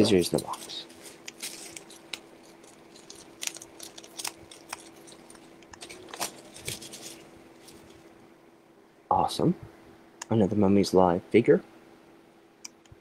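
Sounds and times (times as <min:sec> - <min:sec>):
rustling of packing material: 0:00.0 - 0:08.1.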